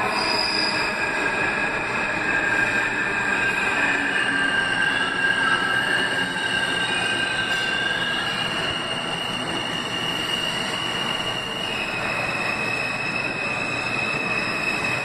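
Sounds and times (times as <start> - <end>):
subway train rumble: 0.0 - 15.0.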